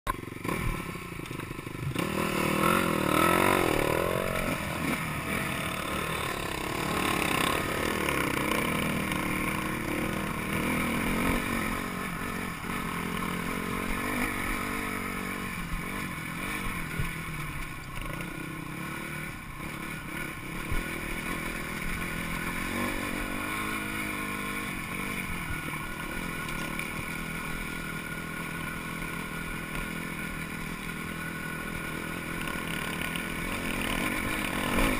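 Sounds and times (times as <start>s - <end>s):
dirt bike engine revving: 0.1s - 34.9s.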